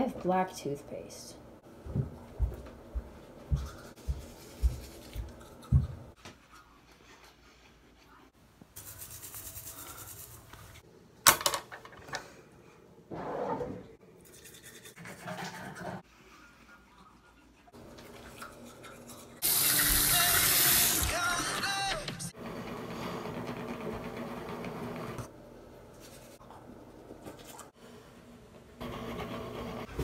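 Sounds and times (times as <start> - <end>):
toothbrush scrubbing teeth: 3.6 - 8.2, 8.8 - 10.5, 14.2 - 21.0.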